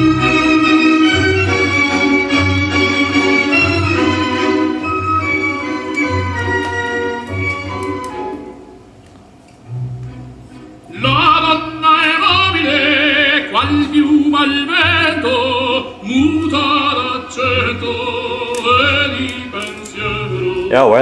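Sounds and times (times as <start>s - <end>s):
musical accompaniment: 0.0s - 21.0s
operatic singing: 10.9s - 21.0s.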